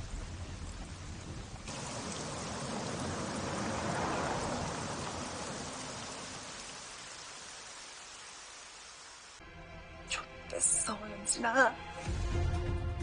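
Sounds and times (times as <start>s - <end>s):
rain hissing: 0.0s - 9.4s.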